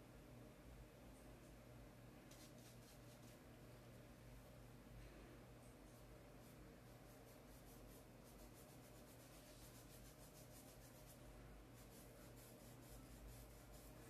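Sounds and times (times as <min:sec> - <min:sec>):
paintbrush scratching on sacking: 0:02.3 - 0:03.4, 0:06.4 - 0:11.2, 0:11.8 - 0:14.0.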